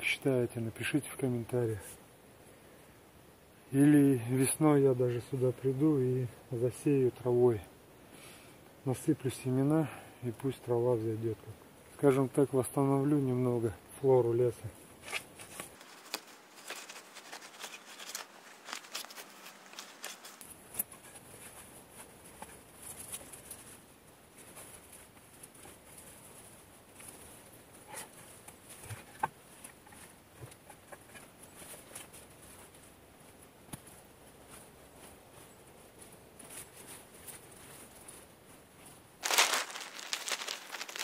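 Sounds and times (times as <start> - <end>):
rustling and scraping of turf: 14.9 - 41.0
roots snapping: 15.1 - 20.5, 39.2 - 41.0.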